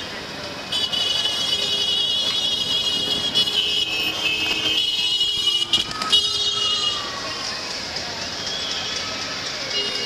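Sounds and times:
street traffic hum: 0.0 - 10.0
high-pitched car horn: 0.7 - 7.0.

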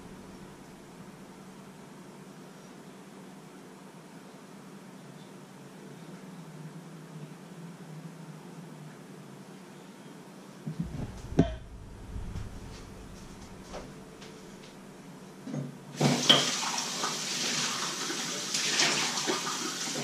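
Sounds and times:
heavy clunk: 10.7 - 14.8
water running into a steel sink: 16.0 - 20.0.

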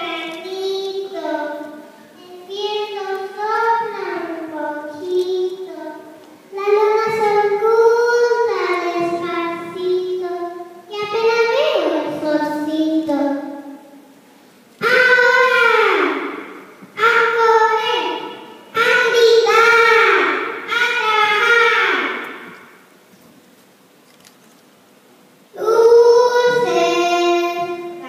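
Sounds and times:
girl singing into microphone: 0.0 - 13.4, 25.6 - 28.0.

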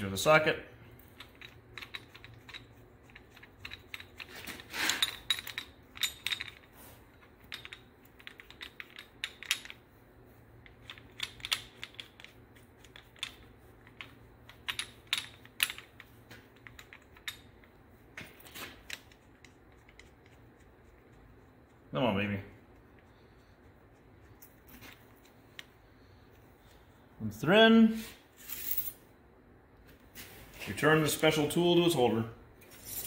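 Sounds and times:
metal parts clicking: 1.0 - 9.8, 10.6 - 20.4.

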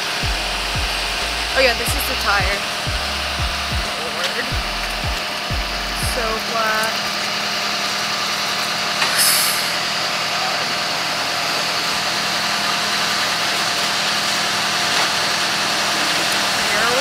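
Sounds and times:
tow truck engine running: 0.0 - 17.0
short hiss: 9.0 - 9.8.

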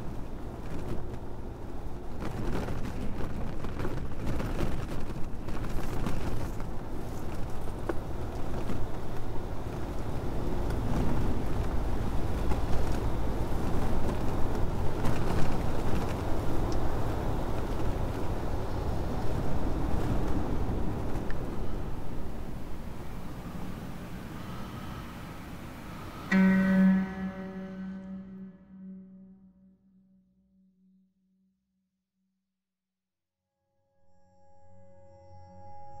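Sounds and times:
low rumbling noise: 0.0 - 30.6.

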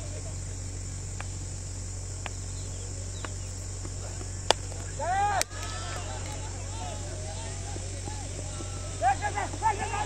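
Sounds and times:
low steady hum: 0.0 - 10.0
night insects chirring: 0.0 - 10.0
faint ticks: 1.0 - 6.4
sharp crack: 3.2 - 6.5.

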